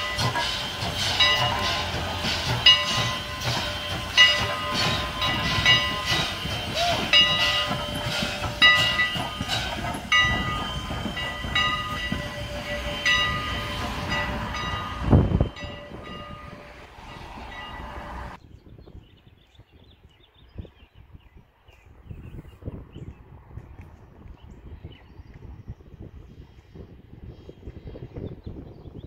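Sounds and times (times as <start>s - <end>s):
bell ringing: 0.0s - 1.9s, 2.6s - 18.0s
steam train moving slowly: 0.0s - 18.4s, 23.3s - 28.5s.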